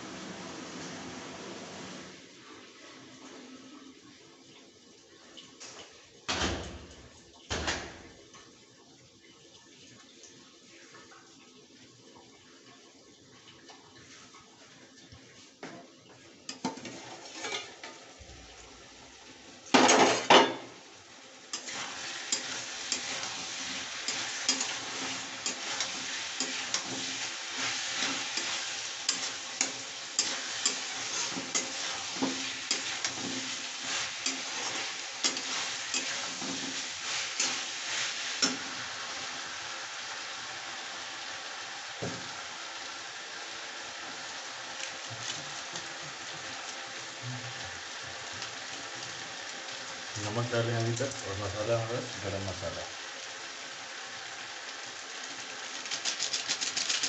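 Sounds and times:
vegetables sizzling in a pan: 0.0 - 57.0
spatula scraping a pan: 16.6 - 18.0, 21.5 - 38.8.

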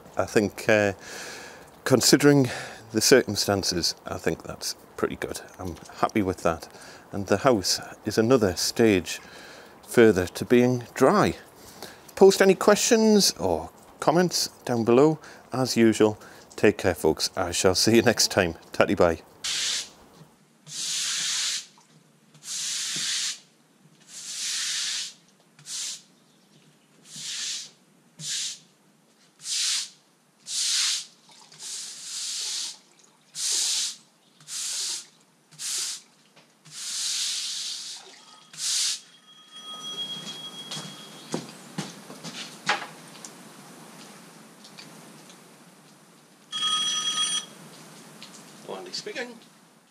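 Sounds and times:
broom brushing wet concrete: 19.4 - 20.0, 20.7 - 21.7, 22.4 - 26.1, 27.0 - 28.7, 29.3 - 32.8, 33.4 - 36.1, 36.7 - 39.1
thin steady tones: 38.2 - 41.4.

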